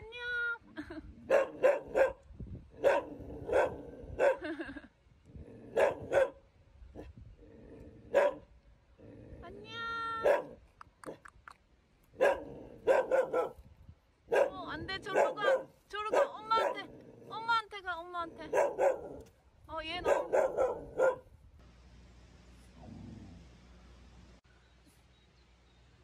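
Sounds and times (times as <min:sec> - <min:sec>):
dogs barking: 0:01.3 - 0:02.2, 0:02.8 - 0:04.4, 0:05.7 - 0:06.4, 0:08.1 - 0:08.4, 0:10.2 - 0:10.6, 0:12.2 - 0:13.6, 0:14.3 - 0:16.9, 0:18.4 - 0:19.2, 0:20.0 - 0:21.3.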